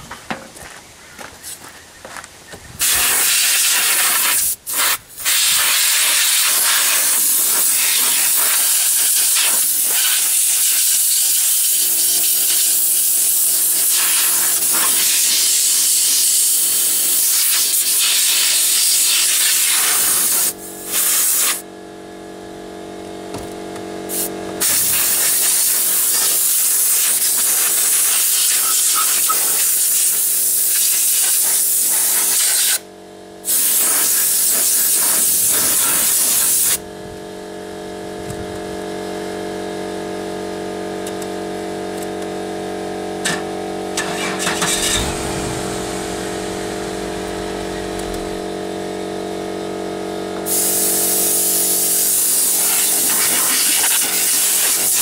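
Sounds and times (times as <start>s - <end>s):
compressed air hissing from blow gun: 2.8s - 21.6s, 24.1s - 32.8s, 33.5s - 36.8s, 50.5s - 55.0s
low steady hum: 41.9s - 50.3s.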